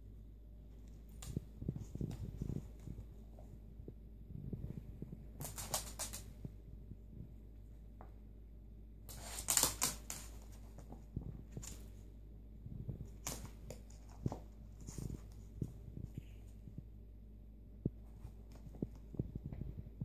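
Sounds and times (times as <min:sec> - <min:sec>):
dog claws clicking on floor: 0:05.4 - 0:06.3.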